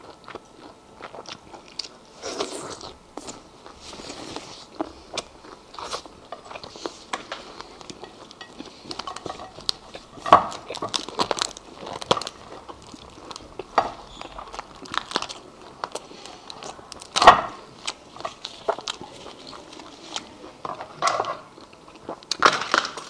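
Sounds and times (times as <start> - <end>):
chewing: 0.0 - 23.0
lobster shell cracking: 7.2 - 16.0.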